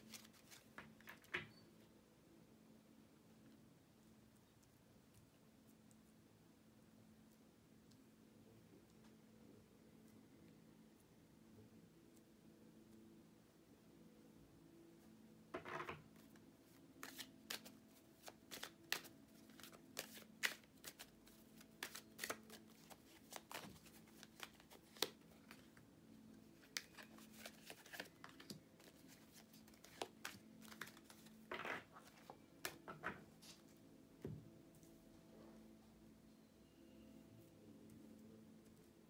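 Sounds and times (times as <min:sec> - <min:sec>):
faint steady hum: 0:00.0 - 0:39.0
cards clicking and snapping: 0:17.0 - 0:25.6, 0:26.6 - 0:31.3.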